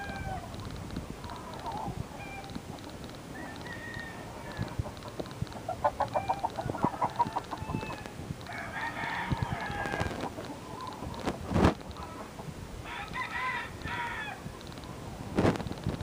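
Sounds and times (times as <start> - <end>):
rooster crowing: 0.0 - 0.5, 3.3 - 4.8, 6.1 - 10.3, 12.8 - 14.5
chicken clucking: 0.0 - 12.5.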